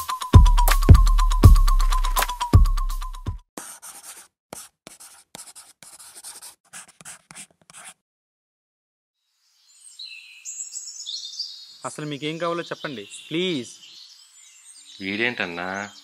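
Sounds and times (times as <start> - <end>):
electronic music with heavy beat: 0.0 - 3.3
marker pen scratching on surface: 3.6 - 8.0.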